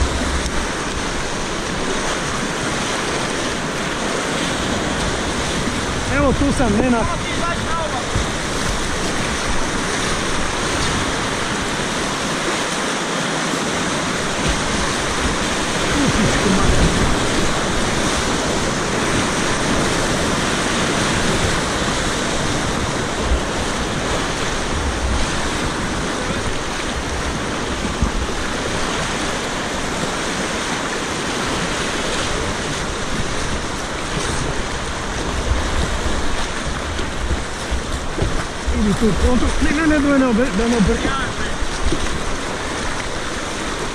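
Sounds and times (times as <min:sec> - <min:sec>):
whitewater rapids rushing: 0:00.0 - 0:43.9
wind buffeting microphone: 0:13.6 - 0:43.9.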